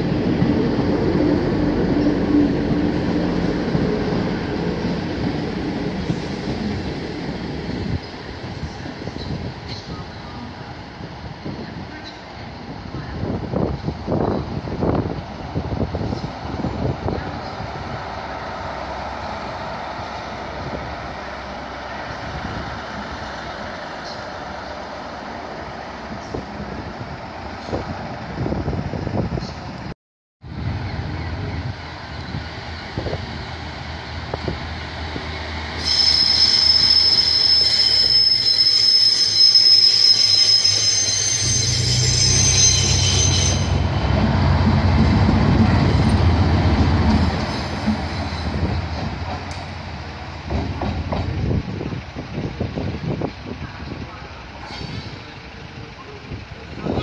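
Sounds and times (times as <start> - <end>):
high-pitched wheel squeal: 35.8 - 44.0
diesel train engine running: 43.6 - 57.0.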